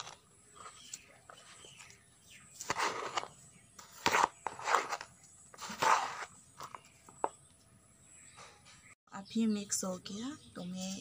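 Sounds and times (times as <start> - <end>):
trowel scraping gritty soil: 0.0 - 1.9, 2.6 - 6.8.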